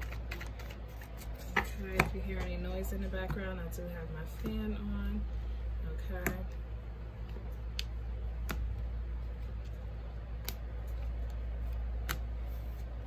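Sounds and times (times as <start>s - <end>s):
electric fan humming: 0.0s - 13.0s
cards clicking on a table: 10.4s - 12.3s.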